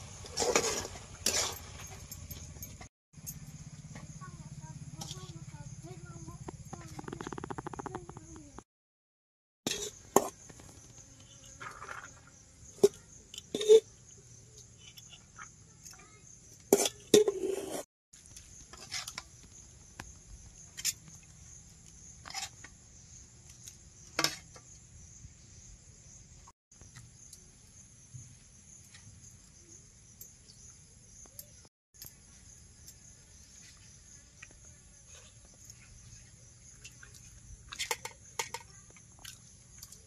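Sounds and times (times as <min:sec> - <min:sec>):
high-pitched insect chirring: 0:05.6 - 0:08.6.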